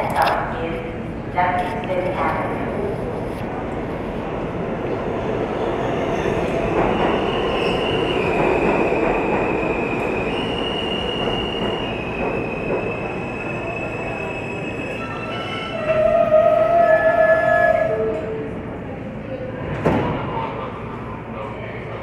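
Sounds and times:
subway cars rumbling: 0.0 - 22.0
train wheels squealing on rails: 6.2 - 18.4.

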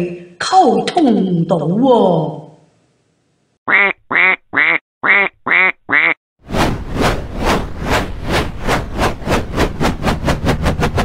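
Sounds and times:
helicopter rotor chop: 6.7 - 11.0.

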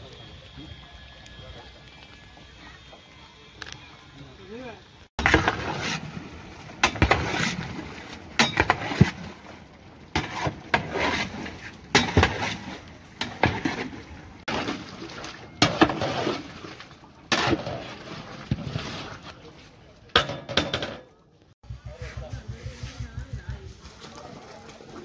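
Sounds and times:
water splashing: 5.1 - 19.7, 22.4 - 25.0
dishes clattering and clinking: 20.1 - 21.1.

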